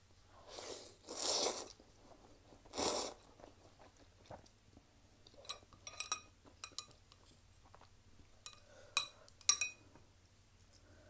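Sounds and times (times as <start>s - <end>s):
noodles slurping: 0.5s - 1.8s.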